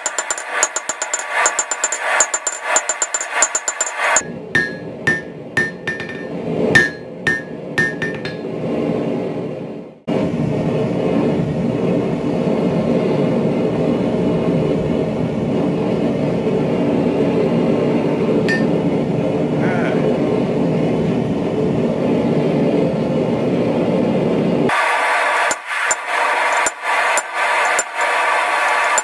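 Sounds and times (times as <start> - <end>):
hammer striking steel on anvil: 0.0 - 8.6, 18.5 - 18.8, 25.5 - 28.1
low rushing roar: 4.2 - 29.0.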